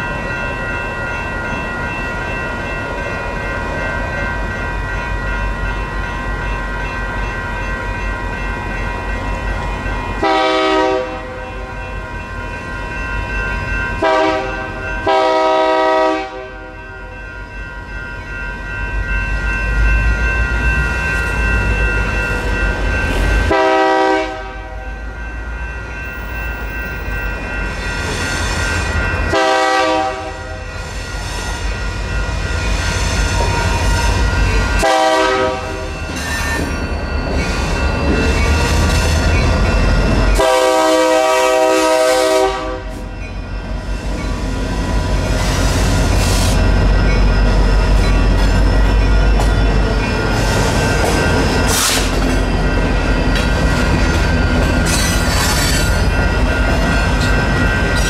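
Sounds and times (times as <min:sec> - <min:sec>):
crossing warning bells ringing: 0:00.0 - 0:58.0
diesel locomotives rumbling: 0:00.0 - 0:58.0
locomotive air horn blasts: 0:10.2 - 0:11.4, 0:14.0 - 0:16.6, 0:23.5 - 0:24.8, 0:29.3 - 0:30.6, 0:34.8 - 0:35.8, 0:40.4 - 0:42.9.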